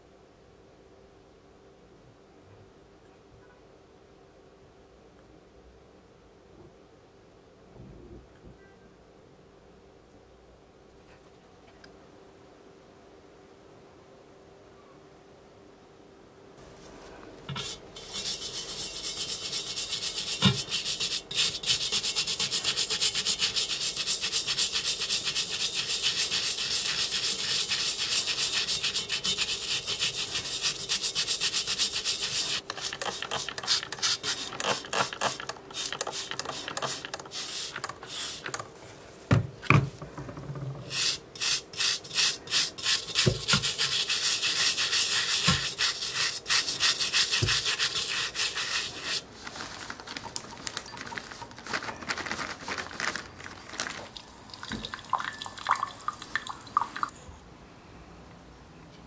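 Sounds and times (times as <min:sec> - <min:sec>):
toothbrush scrubbing metal: 0:17.5 - 0:38.6, 0:40.9 - 0:49.2
spray bottle bursts: 0:32.3 - 0:38.6.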